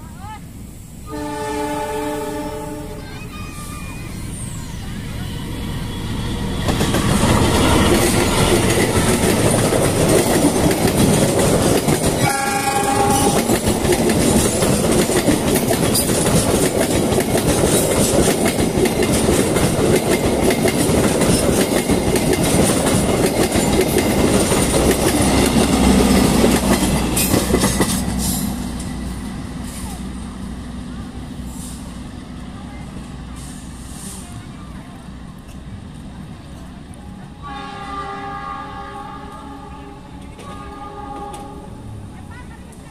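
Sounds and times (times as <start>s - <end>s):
locomotive horn: 1.1s - 3.0s, 12.2s - 13.8s, 37.4s - 42.0s
train wheels clattering over rail joints: 6.6s - 29.2s.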